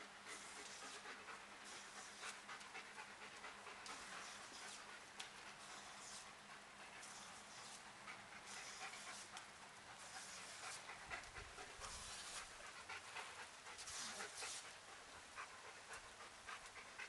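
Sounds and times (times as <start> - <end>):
dog panting: 0.0 - 17.0
sprinkler water hissing: 8.4 - 14.8.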